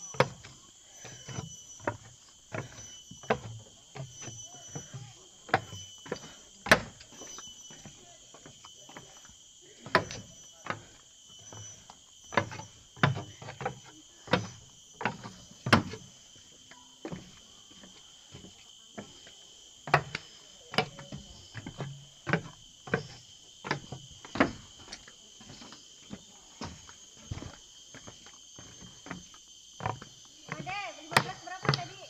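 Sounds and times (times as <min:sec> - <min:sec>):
insects droning: 0:00.0 - 0:32.0
footsteps walking: 0:20.8 - 0:32.0.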